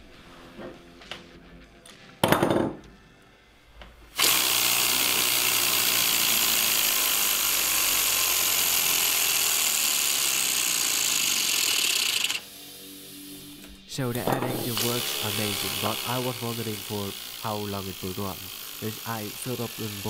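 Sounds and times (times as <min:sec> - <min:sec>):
air engine hissing and buzzing: 0:12.4 - 0:20.0.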